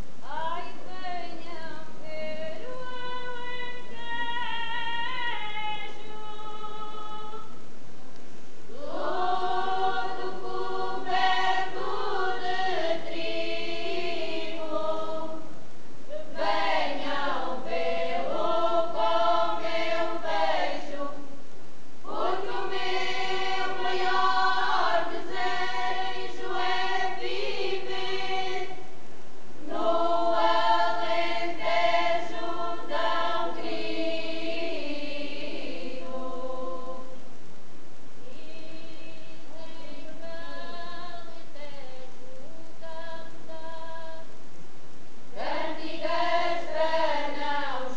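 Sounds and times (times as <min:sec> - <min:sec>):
choir singing in harmony: 0:08.7 - 0:21.3, 0:22.0 - 0:28.8, 0:29.6 - 0:37.1, 0:45.4 - 0:47.9.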